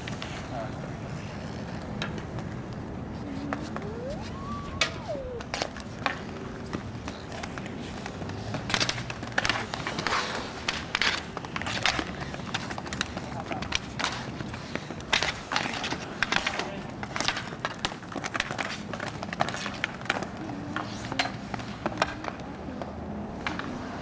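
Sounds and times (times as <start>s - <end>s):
skate wheels rumbling on asphalt: 0.0s - 24.0s
hockey sticks clacking: 1.2s - 24.0s
long rising and falling call: 3.5s - 5.5s.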